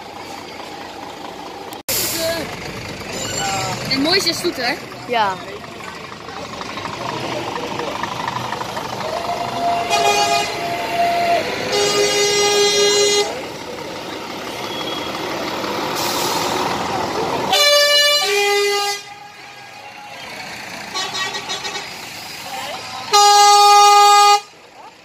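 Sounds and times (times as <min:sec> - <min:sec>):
diesel truck engines: 0:00.0 - 0:25.0
truck air horn blasts: 0:09.6 - 0:13.6, 0:17.5 - 0:19.9, 0:20.8 - 0:22.1, 0:23.0 - 0:24.6.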